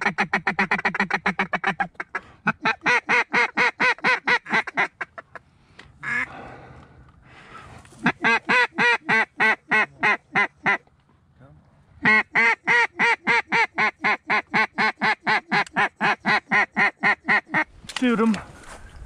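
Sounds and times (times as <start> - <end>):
duck call quacks: 0.0 - 5.4, 6.0 - 6.3, 8.0 - 10.8, 12.0 - 17.7.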